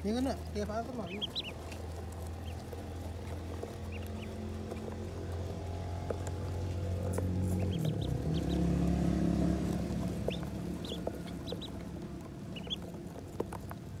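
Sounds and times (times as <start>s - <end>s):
ducklings peeping: 0.0s - 14.0s.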